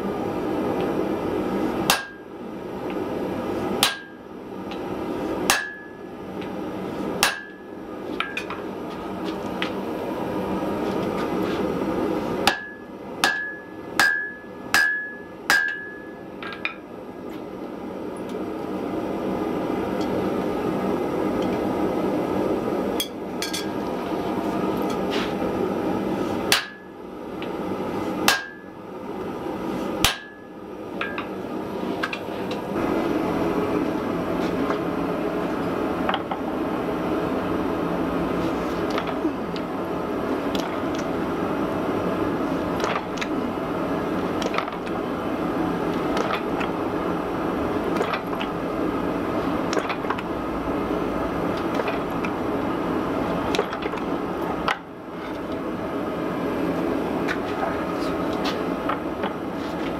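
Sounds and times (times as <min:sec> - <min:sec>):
hammer striking iron on anvil: 0:01.9 - 0:02.3, 0:03.8 - 0:04.2, 0:05.5 - 0:06.0, 0:07.2 - 0:08.6, 0:12.4 - 0:16.8, 0:26.5 - 0:26.9, 0:28.3 - 0:28.7, 0:30.0 - 0:31.3.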